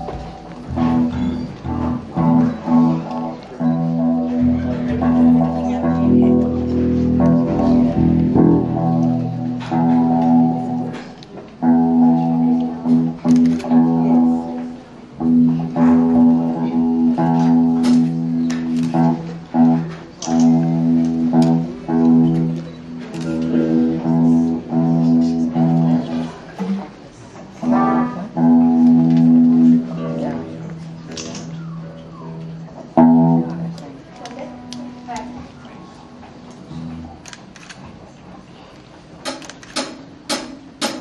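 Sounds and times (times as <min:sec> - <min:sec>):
electric guitars and bass riff: 0:00.0 - 0:26.6, 0:27.6 - 0:37.7
sharp drum hits: 0:39.8 - 0:41.0.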